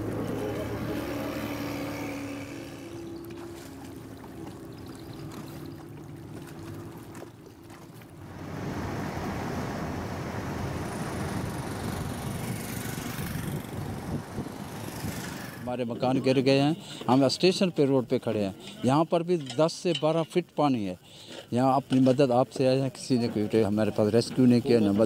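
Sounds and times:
boat motor humming: 0:00.0 - 0:17.2.

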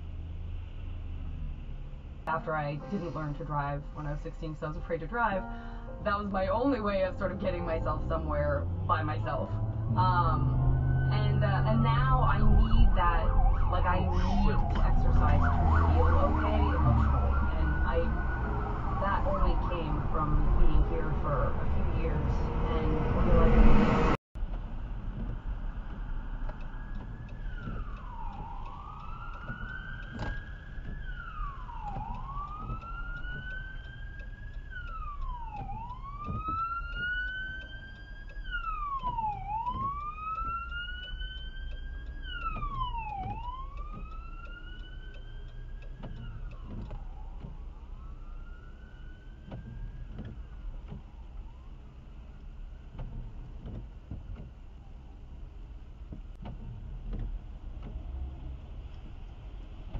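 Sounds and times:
car engine and road rumble: 0:00.0 - 0:59.9
emergency siren wailing: 0:06.0 - 0:24.2, 0:25.4 - 0:52.6.

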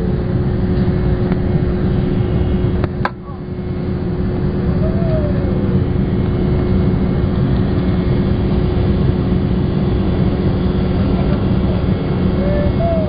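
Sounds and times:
airplane cabin engine rumble: 0:00.0 - 0:13.0.

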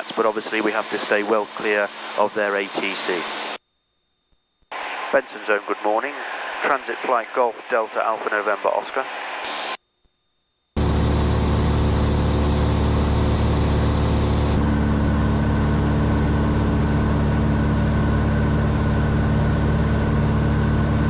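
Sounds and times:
propeller plane engine droning: 0:10.8 - 0:21.0.

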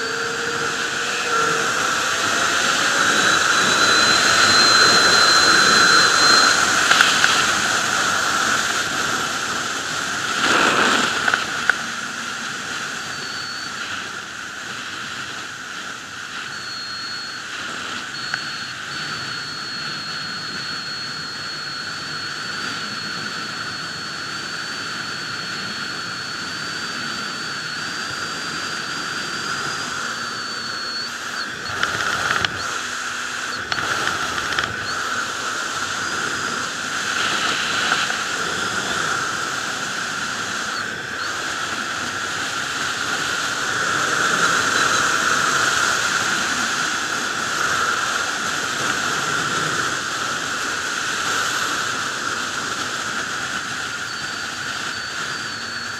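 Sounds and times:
wind rushing over microphone: 0:00.0 - 0:16.6
thin high whine: 0:00.0 - 0:55.9.

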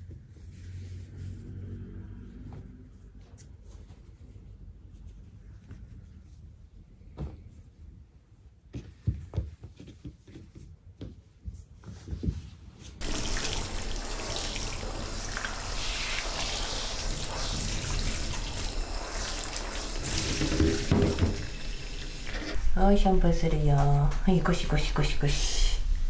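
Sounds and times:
towels rustling: 0:11.4 - 0:20.9
shower spraying water: 0:13.0 - 0:26.0.

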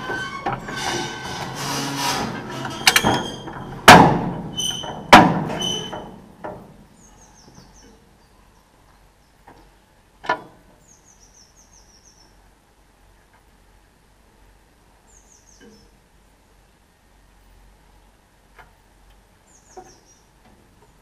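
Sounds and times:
loud metallic clanks ringing: 0:00.0 - 0:06.2
small bird chirping: 0:10.8 - 0:12.4, 0:15.0 - 0:16.0, 0:19.4 - 0:21.0.

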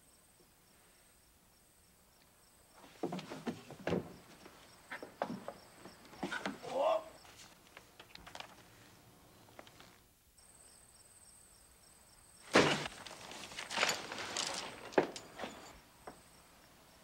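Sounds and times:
crickets chirping: 0:00.0 - 0:17.0
rustling movement: 0:12.4 - 0:15.8.

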